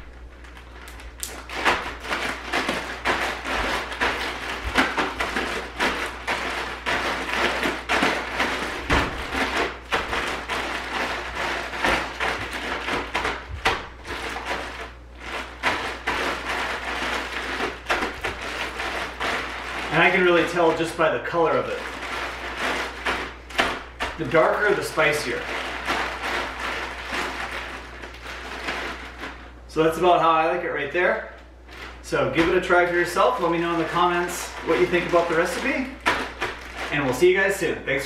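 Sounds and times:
plastic bag crinkling: 0.0s - 30.2s, 31.0s - 38.0s.

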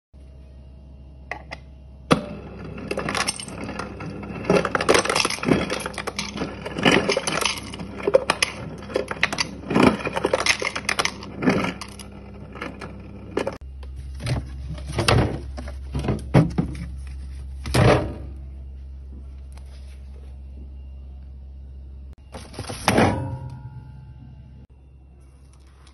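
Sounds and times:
steady low hum: 0.2s - 25.9s
ice cubes clattering into mug: 4.5s - 12.0s.

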